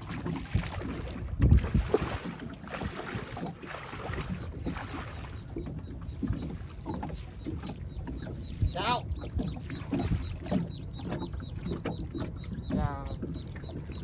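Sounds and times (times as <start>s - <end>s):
water splashing and sloshing: 0.0s - 14.0s.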